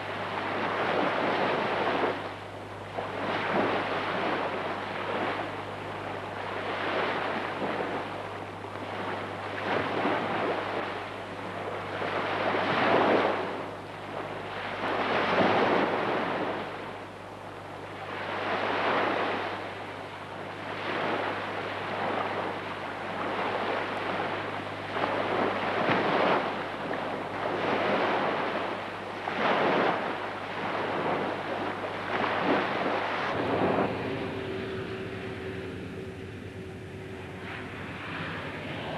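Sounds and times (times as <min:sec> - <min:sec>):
steady low hum: 0:00.0 - 0:38.9
surf washing onto shore: 0:00.0 - 0:38.9.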